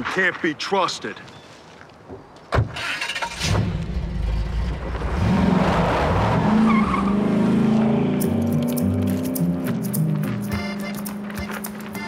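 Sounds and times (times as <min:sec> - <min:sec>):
tyres skidding: 0:00.0 - 0:12.0
car engine revving: 0:03.2 - 0:12.0
music: 0:09.3 - 0:12.0.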